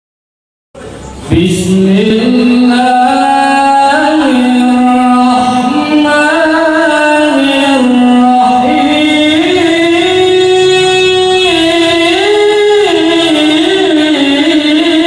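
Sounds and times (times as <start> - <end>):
man reciting melodically: 1.3 - 15.0.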